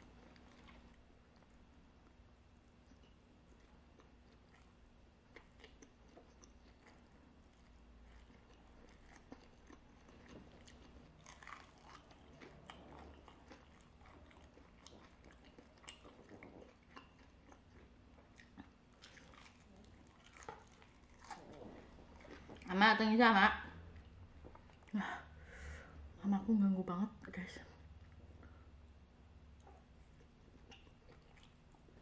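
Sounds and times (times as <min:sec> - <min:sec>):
crunchy food being chewed: 0:00.0 - 0:22.7, 0:29.6 - 0:32.0
person chewing noodles: 0:02.8 - 0:22.7, 0:29.6 - 0:32.0.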